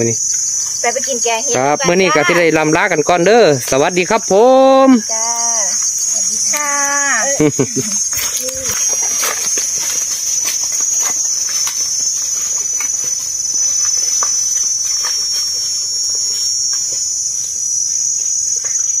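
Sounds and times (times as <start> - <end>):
insects droning: 0.0 - 19.0
footsteps on dry leaves: 7.4 - 19.0.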